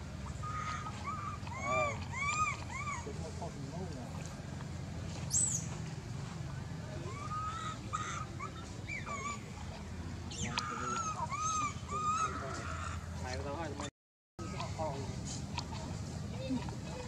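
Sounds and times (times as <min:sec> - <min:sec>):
baby monkey crying: 0:00.2 - 0:03.4, 0:07.0 - 0:13.0.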